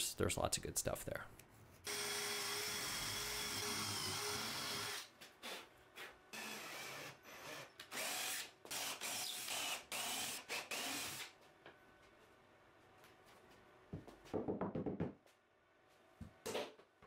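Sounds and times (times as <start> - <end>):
power drill driving screws: 1.9 - 5.6, 6.3 - 11.3.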